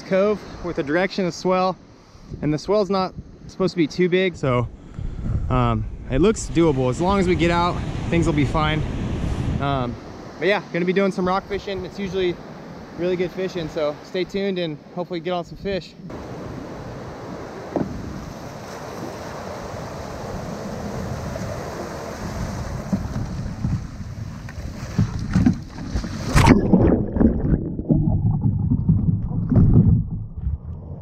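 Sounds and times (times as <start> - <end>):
surf washing and hissing: 0.0 - 25.1
wind buffeting microphone: 4.4 - 10.3, 15.7 - 31.0
muffled water sloshing thumps: 17.7 - 18.3, 22.2 - 30.7.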